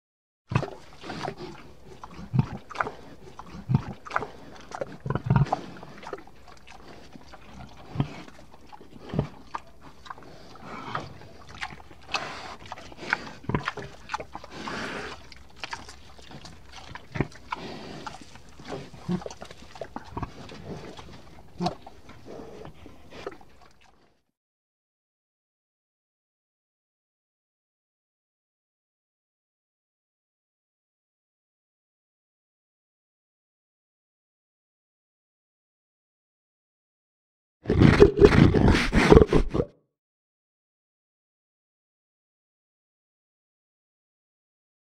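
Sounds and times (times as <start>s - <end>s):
person making pig noises: 18.7s - 19.4s, 37.7s - 39.8s.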